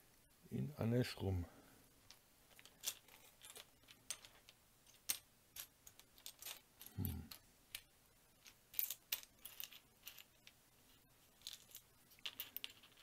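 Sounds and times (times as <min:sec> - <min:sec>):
plastic bricks clicking and clattering: 0:02.1 - 0:10.6, 0:11.3 - 0:13.0.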